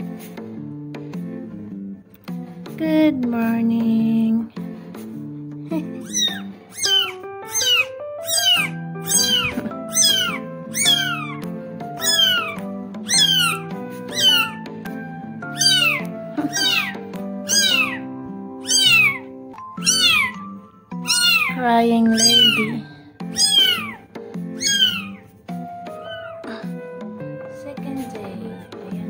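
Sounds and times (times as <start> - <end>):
background music: 0.0 - 29.0
kitten mewing: 5.7 - 26.8.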